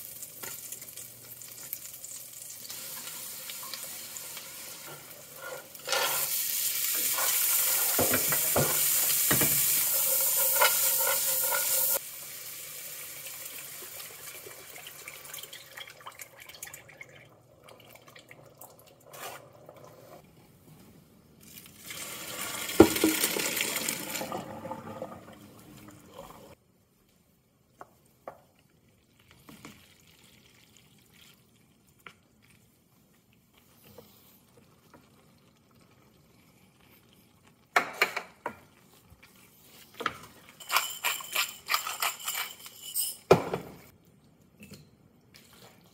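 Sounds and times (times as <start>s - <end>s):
roux hissing and bubbling in skillet: 0.0s - 14.8s.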